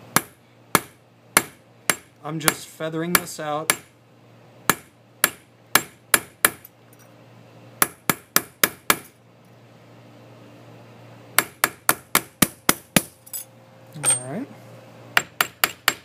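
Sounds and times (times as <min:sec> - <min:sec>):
hammer tapping steel punch: 0:00.2 - 0:03.9, 0:15.2 - 0:16.0.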